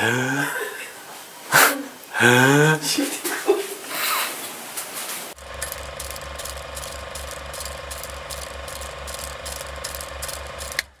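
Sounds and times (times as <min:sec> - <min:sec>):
film projector clatter: 0:05.4 - 0:11.0
sharp clicks: 0:05.5 - 0:11.0.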